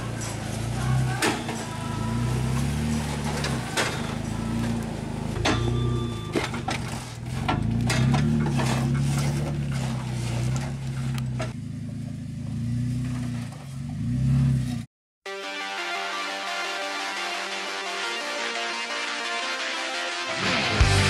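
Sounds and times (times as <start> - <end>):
car engine revving at crawling speed: 0.0 - 14.9.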